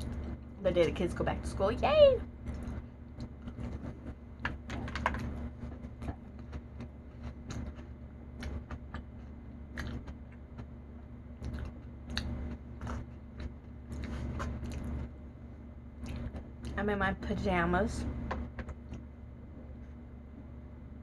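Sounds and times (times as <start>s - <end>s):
steady low hum: 0.0s - 21.0s
person chewing: 6.0s - 10.7s, 11.4s - 15.0s.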